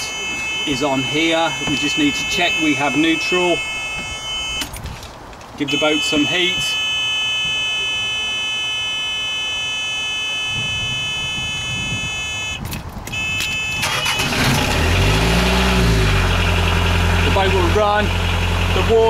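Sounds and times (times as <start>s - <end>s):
high warning buzzer tone: 0.0s - 4.7s, 5.7s - 14.4s
diesel engine starting and idling: 13.0s - 19.0s
starter motor cranking: 13.8s - 14.9s.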